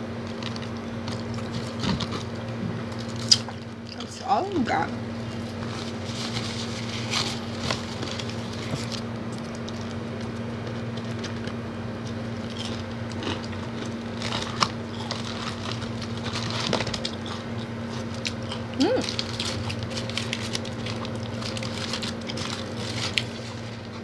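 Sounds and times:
steady low hum: 0:00.0 - 0:24.0
biting and chewing: 0:00.2 - 0:04.1, 0:05.2 - 0:24.0
paper wrappers crinkling: 0:05.3 - 0:10.4, 0:12.4 - 0:24.0.

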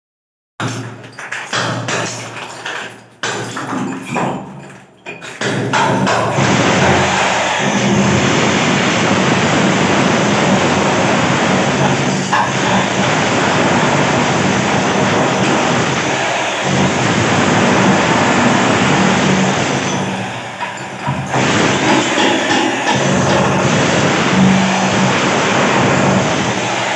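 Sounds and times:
demolition hammer chipping tiles: 0:00.6 - 0:26.9.

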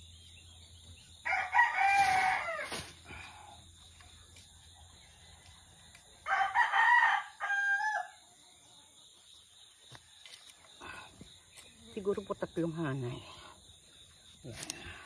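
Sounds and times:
rooster crowing: 0:01.2 - 0:02.7, 0:06.2 - 0:08.2.

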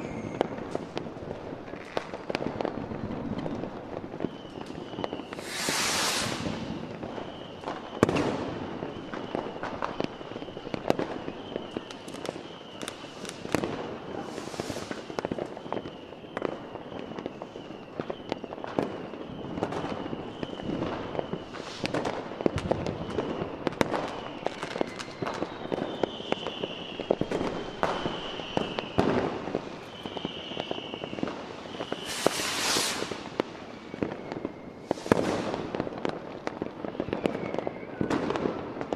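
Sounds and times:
firework crackling bursts: 0:00.0 - 0:38.9
firework shells bursting: 0:04.5 - 0:08.5, 0:14.2 - 0:15.5, 0:21.2 - 0:34.2.

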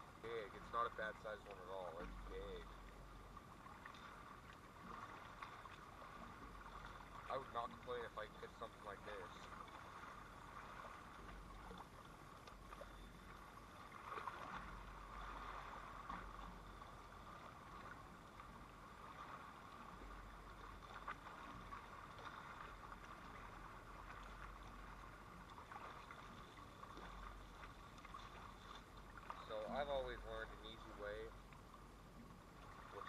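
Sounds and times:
water washing at shoreline: 0:00.0 - 0:33.0
faint clicks: 0:11.3 - 0:12.9.

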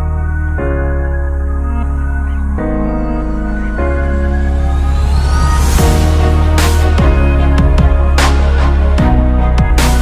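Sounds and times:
slow sustained new-age chords: 0:00.0 - 0:09.1.

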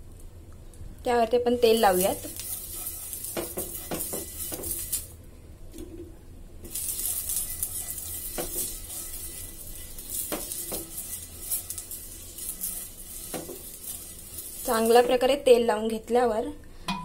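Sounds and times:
oil sizzling on griddle: 0:01.6 - 0:05.2, 0:06.6 - 0:15.5
onion scraping on pan: 0:01.6 - 0:05.2, 0:06.6 - 0:15.8.

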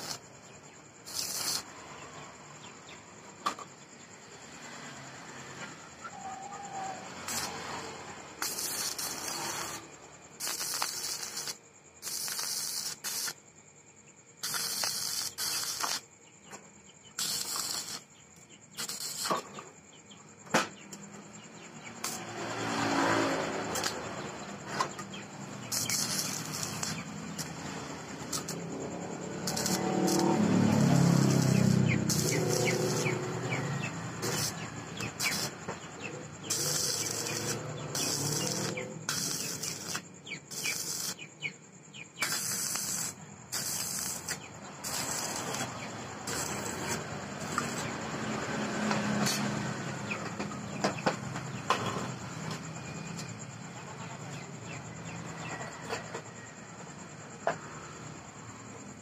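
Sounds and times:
welding arc crackling: 0:00.0 - 0:00.3, 0:01.1 - 0:01.7, 0:07.3 - 0:07.8, 0:08.4 - 0:13.4, 0:14.4 - 0:16.1, 0:17.2 - 0:18.1, 0:18.8 - 0:19.4, 0:25.6 - 0:35.6, 0:36.5 - 0:41.2, 0:42.2 - 0:48.0.

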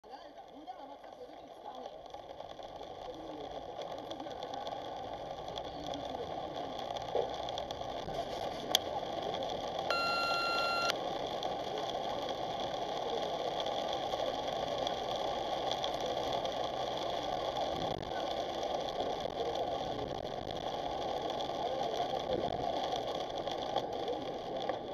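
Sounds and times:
electronic beep: 0:09.9 - 0:10.9
tyres hissing on wet road: 0:11.0 - 0:24.9.

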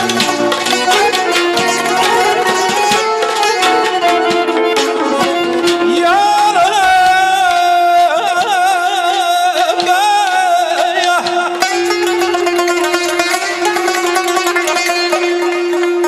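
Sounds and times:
accordion: 0:00.0 - 0:06.3
frame drums: 0:00.0 - 0:07.7
tar: 0:00.0 - 0:16.0.

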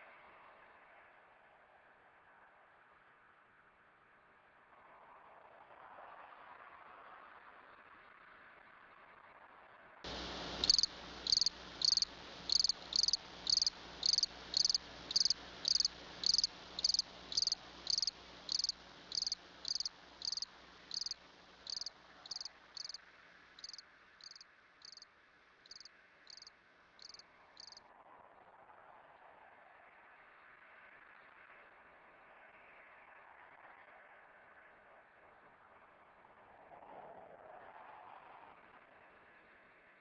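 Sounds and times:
cricket chirping: 0:10.1 - 0:23.0, 0:23.6 - 0:25.0, 0:25.7 - 0:27.8.

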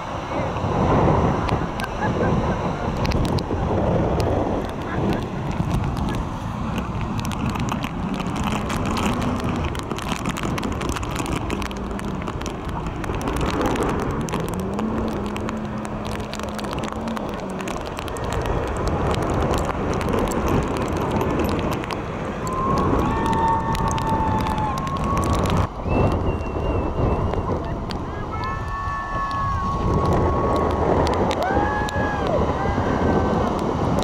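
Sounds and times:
surf rushing: 0:00.0 - 0:34.0
wind buffeting microphone: 0:00.0 - 0:34.0.

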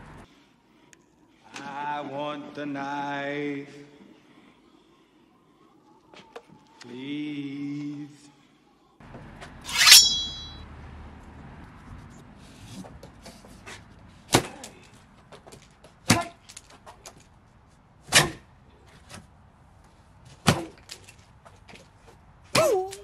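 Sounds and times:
sharp metallic ring: 0:09.7 - 0:10.6.

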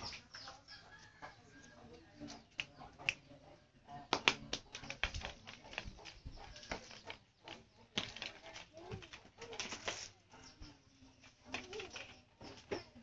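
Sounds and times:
sharp clicks and taps: 0:04.1 - 0:10.0.

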